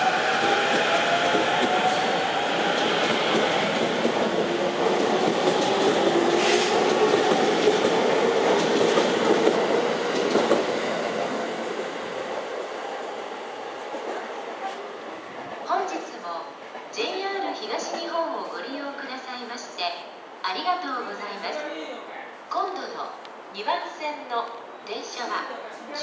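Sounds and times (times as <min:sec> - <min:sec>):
train wheels rumbling over rail joints: 0:00.0 - 0:11.4.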